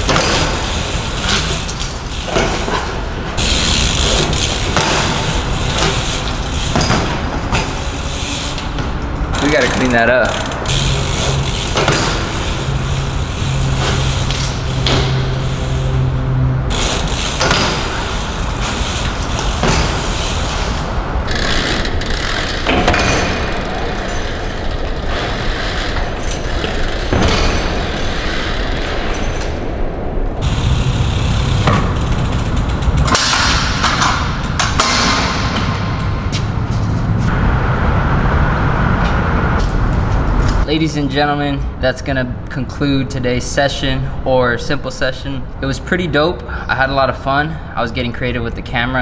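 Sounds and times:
bike landing knocks and thuds: 0.0s - 8.0s, 10.7s - 16.0s, 16.7s - 21.1s, 22.6s - 23.6s, 30.4s - 36.8s
bike tyres rolling on concrete: 0.0s - 40.7s
steady low hum: 0.0s - 40.7s.

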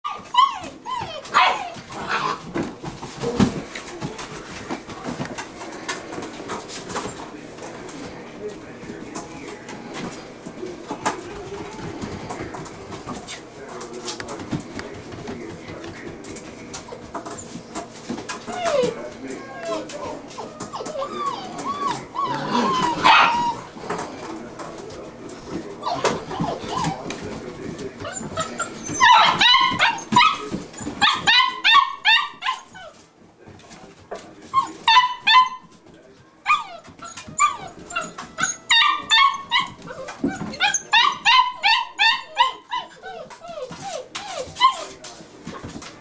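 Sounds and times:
puppies whining and yelping: 0.1s - 2.5s, 16.8s - 23.7s, 25.3s - 27.2s, 28.0s - 33.0s, 34.5s - 35.7s, 36.5s - 45.0s.

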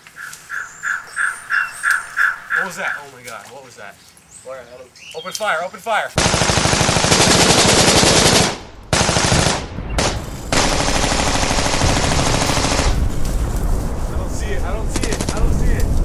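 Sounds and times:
machine-gun bursts: 6.2s - 13.0s, 15.0s - 15.5s.

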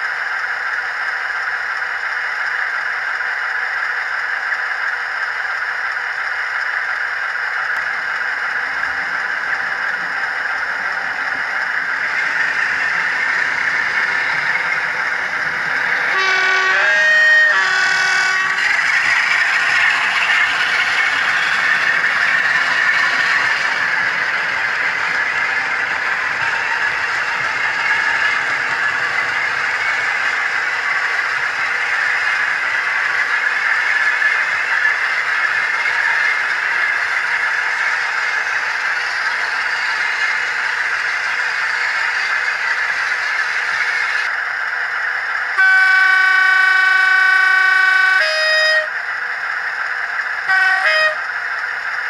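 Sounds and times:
model train rumbling: 0.0s - 52.0s
model locomotive horn: 16.1s - 18.7s, 45.6s - 49.0s, 50.5s - 51.3s.

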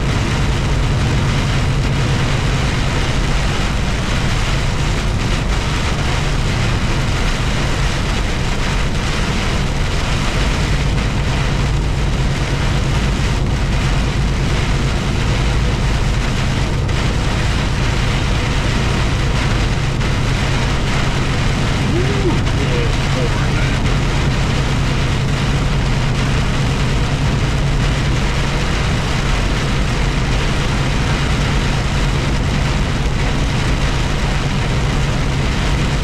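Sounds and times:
heavy rain on windshield: 0.0s - 36.0s
road noise: 0.0s - 36.0s
truck engine drone: 0.0s - 36.0s.

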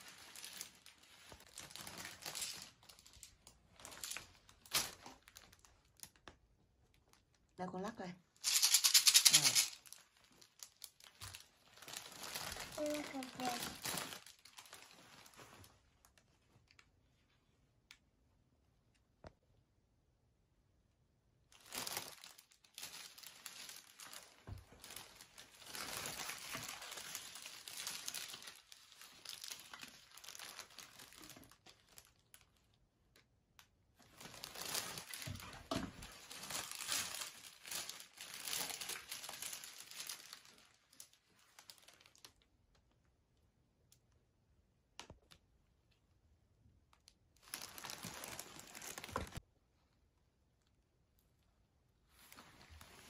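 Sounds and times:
gift wrapping crinkling and tearing: 0.0s - 6.2s, 8.4s - 16.2s, 21.5s - 32.7s, 34.0s - 42.5s, 47.4s - 49.4s.

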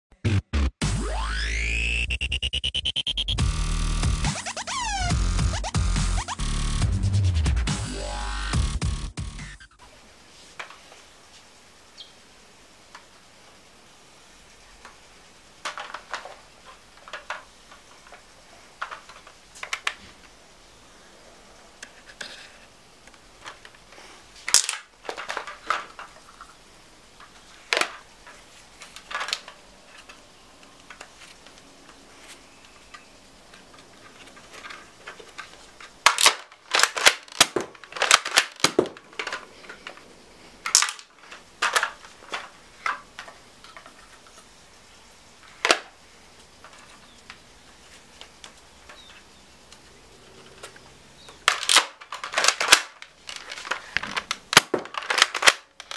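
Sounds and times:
toy blaster plastic clacks: 24.5s - 26.1s, 27.2s - 30.2s, 32.9s - 40.0s, 40.6s - 44.0s, 51.4s - 55.9s.

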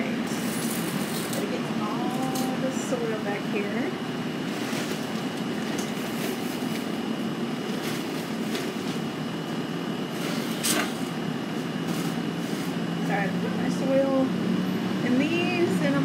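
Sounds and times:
low mechanical hum: 0.0s - 16.0s
rustles and knocks of handling: 7.6s - 9.1s.

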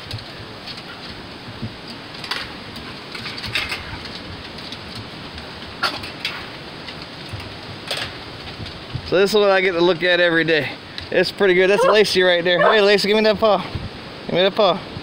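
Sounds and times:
steady outdoor hiss: 0.0s - 15.0s
dogs scuffing and clicking: 11.8s - 12.0s.

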